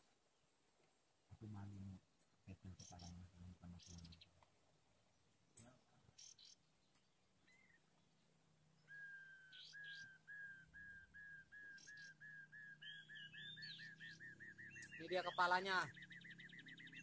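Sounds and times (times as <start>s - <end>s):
faint high chirps: 5.1s - 17.0s
repeated whistled call: 8.8s - 17.0s.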